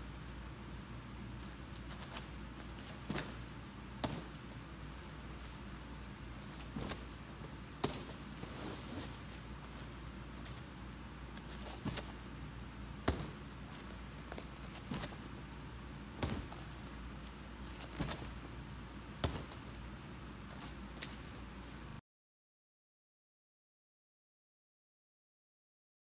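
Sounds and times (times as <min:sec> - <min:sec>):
steady low hum: 0:00.0 - 0:22.0
dull thuds on padded mat: 0:13.0 - 0:13.4, 0:16.2 - 0:16.7, 0:19.2 - 0:19.6.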